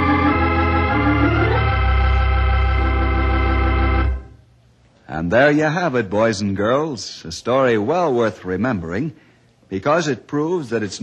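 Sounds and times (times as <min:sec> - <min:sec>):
organ chord held: 0:00.0 - 0:04.5.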